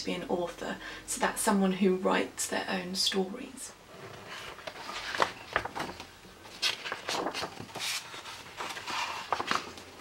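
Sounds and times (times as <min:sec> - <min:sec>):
book pages turning: 0:04.2 - 0:10.0.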